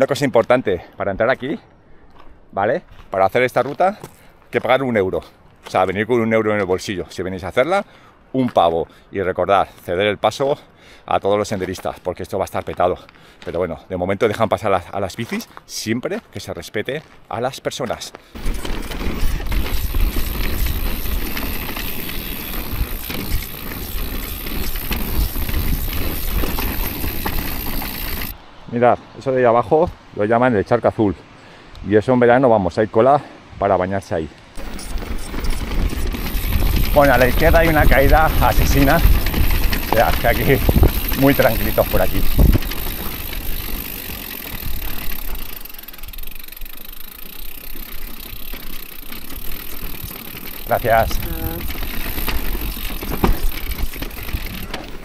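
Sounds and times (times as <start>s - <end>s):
tyres crunching over stones: 2.2s - 6.0s, 11.5s - 28.4s, 34.6s - 55.0s
bike clattering over bumps: 18.4s - 28.3s, 34.6s - 55.0s
low wind rumble on microphone: 18.4s - 28.3s, 34.6s - 43.9s.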